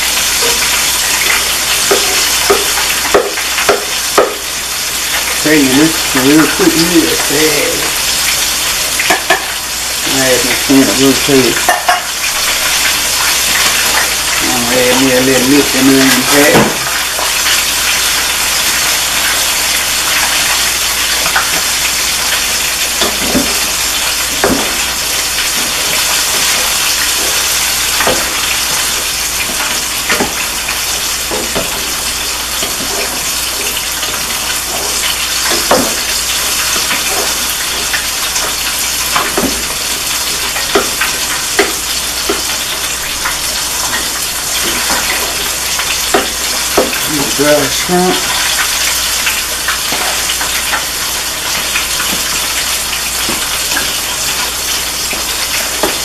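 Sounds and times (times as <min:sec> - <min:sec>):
food sizzling in a pot: 0:00.0 - 0:56.0
spoon knocking against pot: 0:01.9 - 0:04.4, 0:11.6 - 0:12.1.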